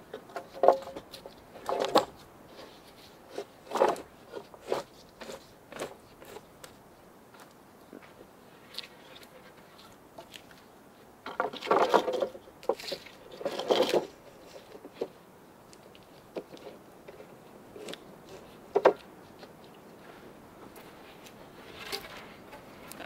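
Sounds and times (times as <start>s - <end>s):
wood scraping: 0.2s - 6.8s, 11.3s - 23.0s.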